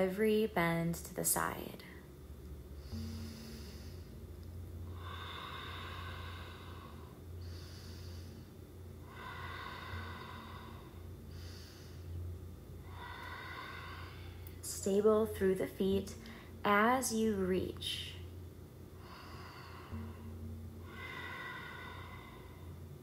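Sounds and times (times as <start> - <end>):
woman breathing slowly: 2.6 - 15.1, 16.2 - 16.6, 18.2 - 23.0.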